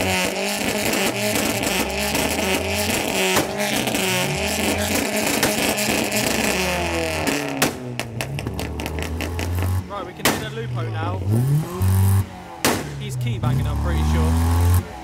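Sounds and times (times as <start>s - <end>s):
sharp crack: 0.0s - 10.8s, 12.2s - 13.4s
car engine: 0.0s - 15.0s.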